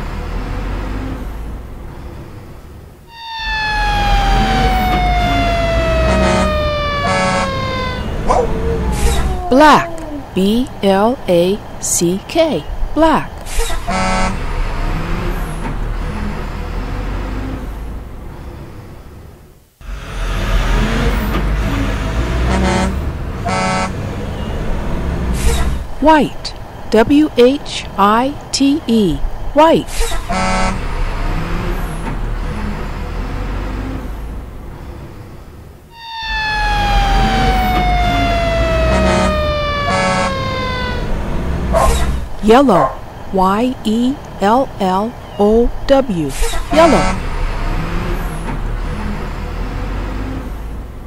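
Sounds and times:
truck engine running: 0.0 - 51.0
siren sliding down in pitch: 3.1 - 10.4, 35.9 - 42.2
cartoon engine rumble: 3.1 - 10.8, 35.9 - 42.2
short horn blasts: 6.0 - 8.0, 13.8 - 14.5, 22.4 - 24.0, 30.3 - 30.9, 38.8 - 41.1, 46.7 - 47.4
short horn honk: 46.8 - 47.2.

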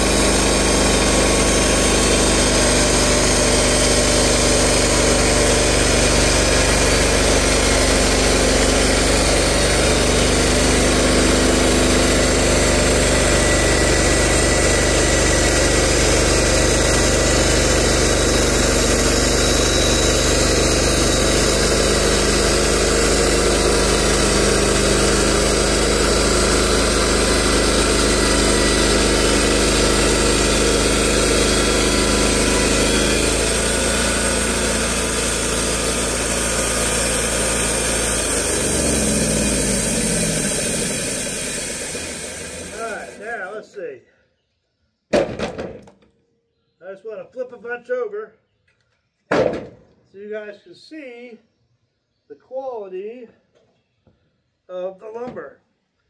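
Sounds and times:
band sawmill engine running: 0.0 - 43.6
band blade sawing through log: 13.0 - 43.2.

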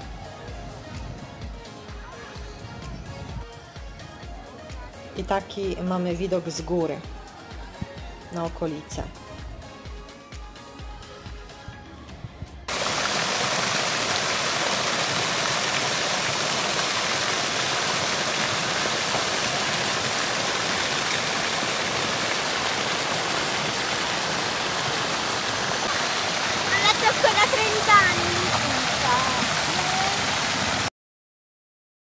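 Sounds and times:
quiet background music: 0.0 - 12.8
fountain water splashing: 12.7 - 30.9.

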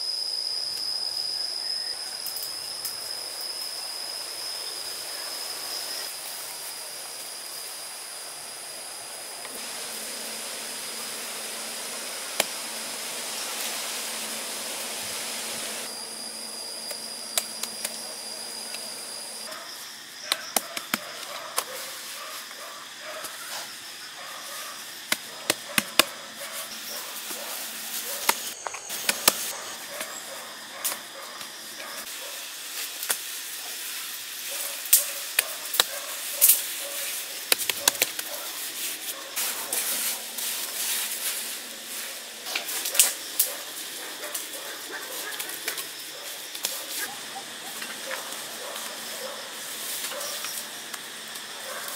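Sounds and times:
high insect drone: 0.0 - 51.9.

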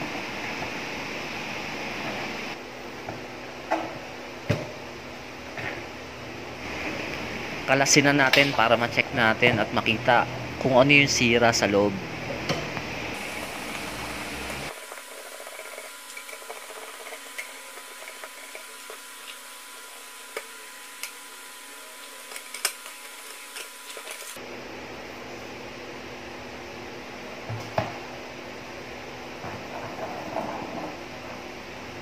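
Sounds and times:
steady hiss: 13.2 - 24.4.

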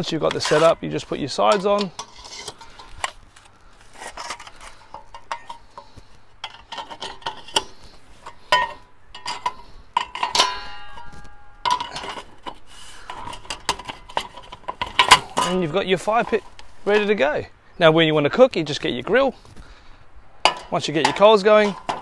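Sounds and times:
metal panel ringing: 8.5 - 12.1.

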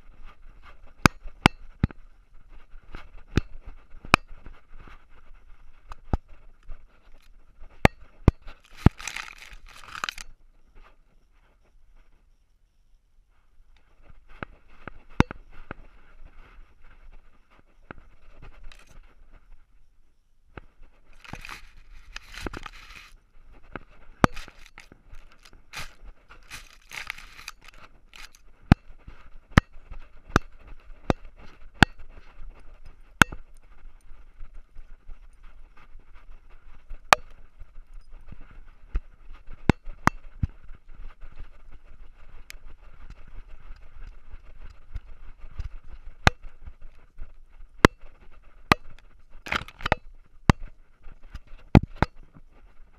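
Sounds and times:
camera housing clicks and knocks: 7.9 - 10.3, 49.5 - 50.0.

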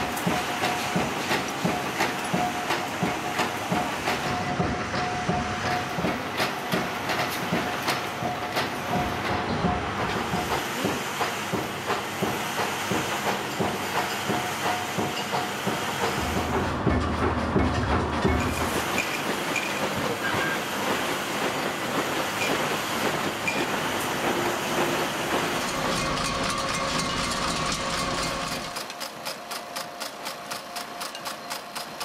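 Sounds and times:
machinery rhythmic clatter: 0.0 - 32.0
machine whine: 16.0 - 21.7, 22.3 - 28.9.

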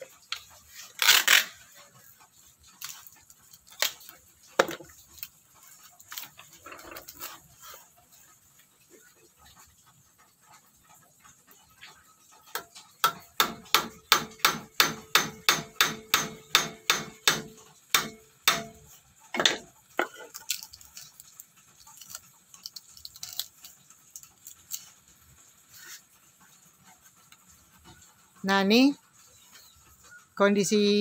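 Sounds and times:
hammer striking steel blade: 12.6 - 19.6.

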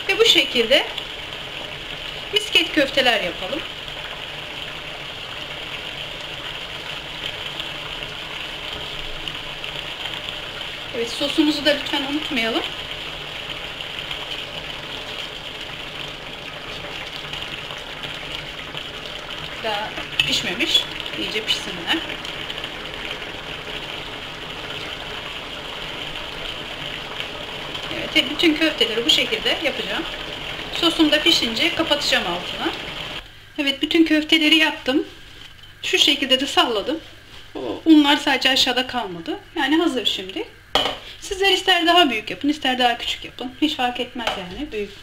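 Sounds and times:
sauce simmering in a pan: 0.0 - 45.0.

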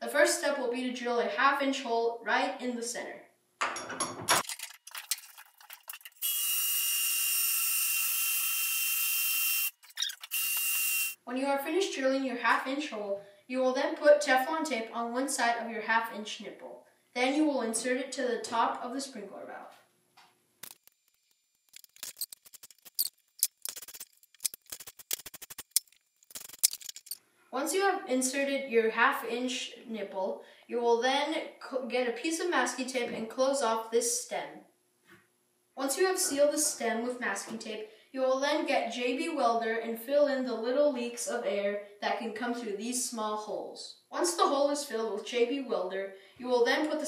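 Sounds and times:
cordless drill boring plastic: 6.2 - 11.2
ratchet wrench clicking: 21.7 - 27.2.

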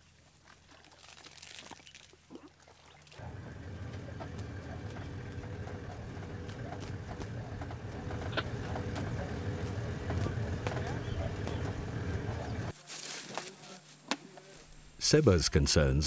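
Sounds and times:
vehicle body rattling: 3.2 - 12.7
vehicle engine running: 3.2 - 12.7.

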